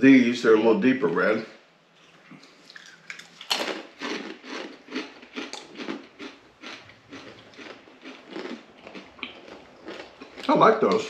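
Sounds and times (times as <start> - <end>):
tortilla chips crunching: 2.6 - 11.0.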